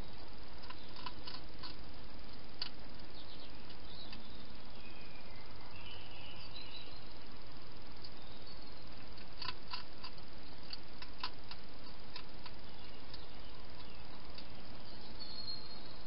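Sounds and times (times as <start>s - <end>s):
steady hiss: 0.0s - 16.0s
hedgehog clicking: 0.6s - 1.8s, 9.2s - 13.2s.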